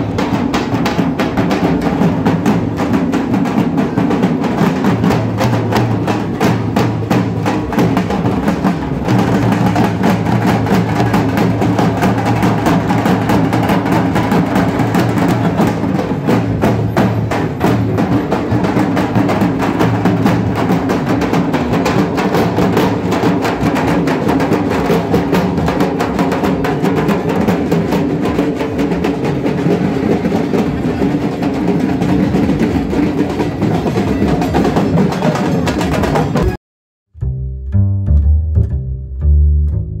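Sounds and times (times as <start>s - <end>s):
barrel drums beaten fast: 0.0s - 36.6s
music with bowed strings: 37.2s - 40.0s.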